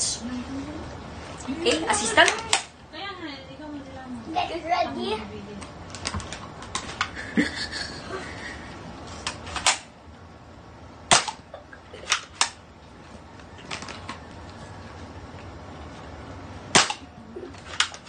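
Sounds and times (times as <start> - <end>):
toy blaster plastic snaps and clacks: 12.1 - 12.6, 17.6 - 18.0.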